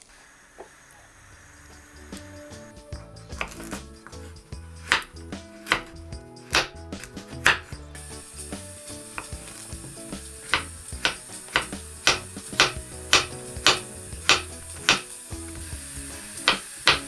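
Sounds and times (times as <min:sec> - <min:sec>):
knife chopping on wooden board: 0:03.0 - 0:07.8, 0:09.2 - 0:15.1, 0:16.4 - 0:17.0.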